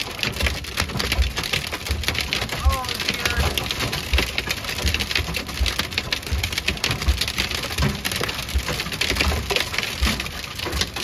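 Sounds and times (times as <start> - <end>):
hail and rain on metal roof: 0.0 - 11.0.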